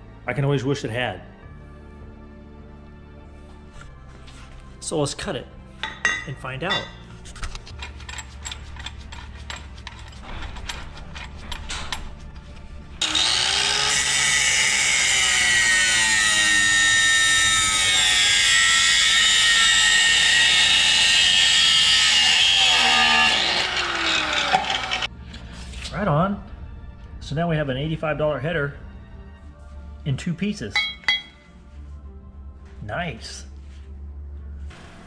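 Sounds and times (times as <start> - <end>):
chop saw cutting metal pipe: 13.0 - 25.1, 30.8 - 31.4.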